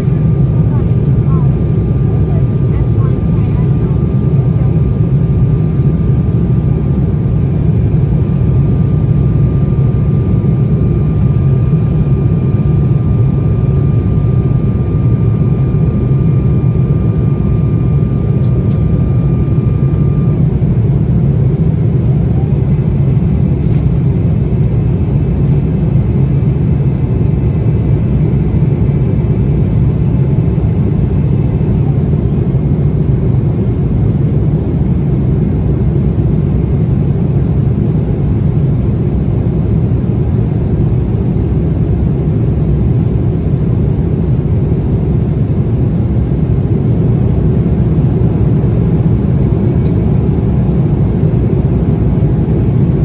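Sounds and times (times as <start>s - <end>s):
airliner cabin engine rumble: 0.0s - 53.0s
faint whine: 0.0s - 53.0s.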